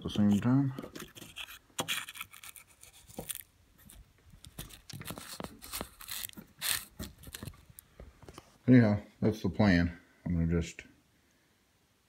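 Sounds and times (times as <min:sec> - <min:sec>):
plastic scraping on threads: 0:00.0 - 0:08.4
plastic crinkling and creaking: 0:00.0 - 0:08.5.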